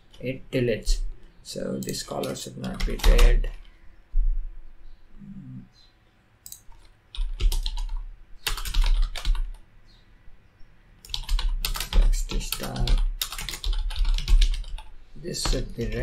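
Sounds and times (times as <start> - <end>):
typing on computer keyboard: 1.8 - 3.6, 6.4 - 9.6, 11.0 - 16.0.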